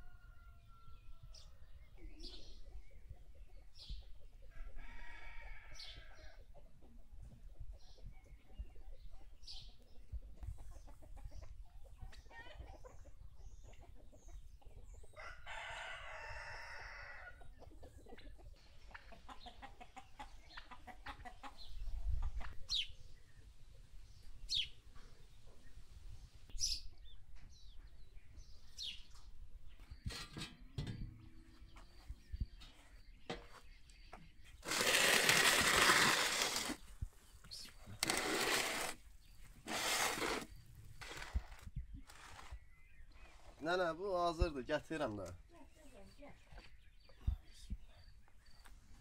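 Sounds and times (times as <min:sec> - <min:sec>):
chickens clucking: 0:01.7 - 0:04.8, 0:06.0 - 0:15.2, 0:16.4 - 0:43.6
rooster crowing: 0:15.2 - 0:17.4.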